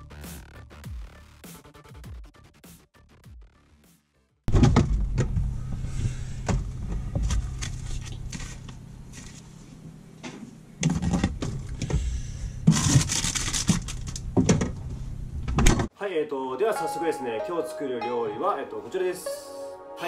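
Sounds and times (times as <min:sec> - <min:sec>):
refrigerator hum: 0:04.5 - 0:15.9
plastic containers clinking and scraping: 0:10.8 - 0:11.6
packaging rustling: 0:12.7 - 0:14.2.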